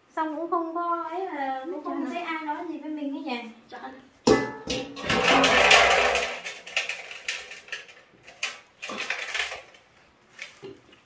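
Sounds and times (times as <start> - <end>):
household objects knocking: 4.3 - 6.3.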